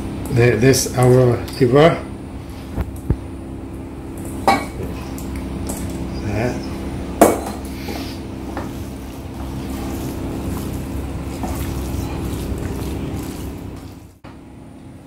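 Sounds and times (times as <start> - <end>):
low kitchen hum: 0.0 - 15.0
hand mixing food squelching: 7.6 - 14.2.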